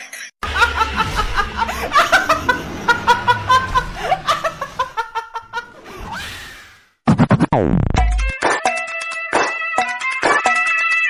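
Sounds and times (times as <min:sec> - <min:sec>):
woman laughing: 0:00.4 - 0:05.8
loud falling sweep: 0:00.4 - 0:08.0.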